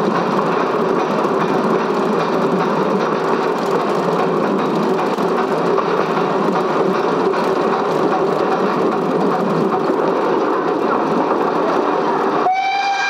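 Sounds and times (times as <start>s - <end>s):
train running: 0.0s - 13.0s
train whistle: 12.4s - 13.0s.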